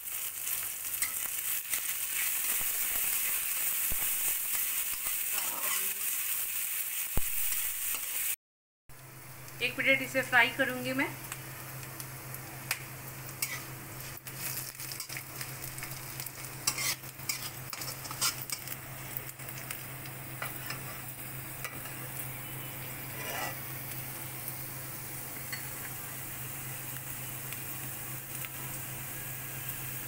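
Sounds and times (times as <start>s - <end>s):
oil sizzling: 0.0s - 30.0s
metal spatula scraping pan: 16.6s - 18.6s, 23.0s - 23.6s.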